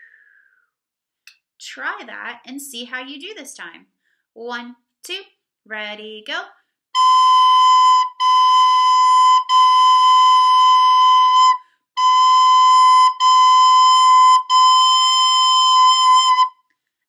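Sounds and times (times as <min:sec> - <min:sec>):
recorder playing held notes: 0:07.0 - 0:16.5.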